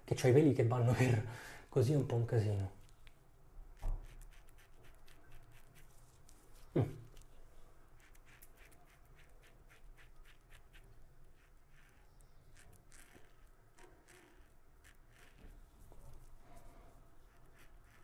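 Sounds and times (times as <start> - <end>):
razor scratching stubble: 3.8 - 7.2, 8.0 - 16.4, 17.1 - 18.0.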